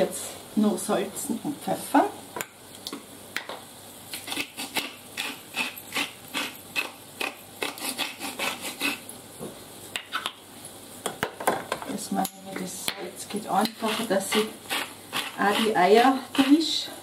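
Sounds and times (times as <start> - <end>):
pepper mill grinding: 4.1 - 9.1, 13.6 - 16.8.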